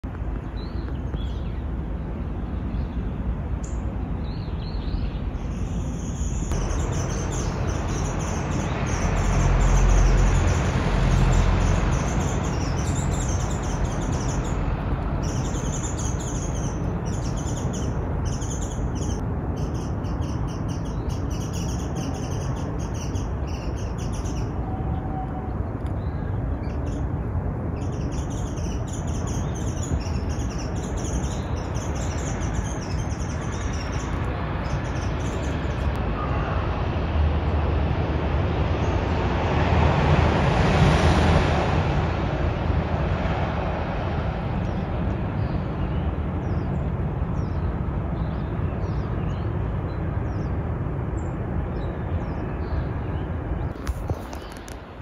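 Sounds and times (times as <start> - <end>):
outdoor background hum: 0.0 - 55.0
birds chirping: 0.4 - 36.5, 44.7 - 50.6, 51.2 - 55.0.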